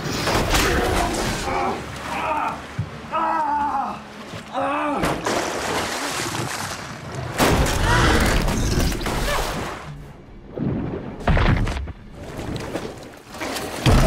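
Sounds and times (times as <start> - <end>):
rushing floodwater: 0.0 - 8.0.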